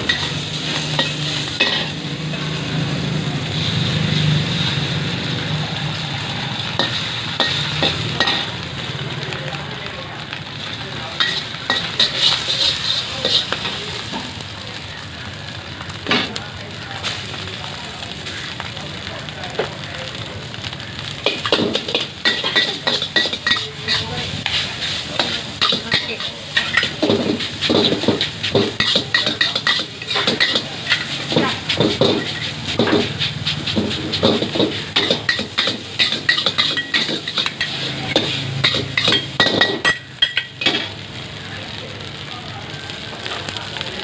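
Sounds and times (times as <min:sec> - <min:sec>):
ladle scraping metal wok: 0:00.0 - 0:02.7, 0:10.6 - 0:14.2, 0:21.2 - 0:41.0
gas burner roar: 0:00.0 - 0:44.0.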